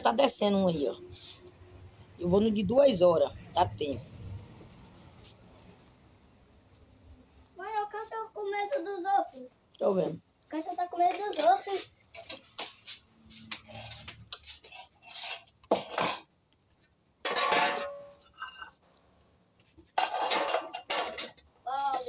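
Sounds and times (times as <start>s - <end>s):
plates and cutlery clattering: 13.5s - 16.3s, 17.2s - 18.8s, 19.8s - 22.0s.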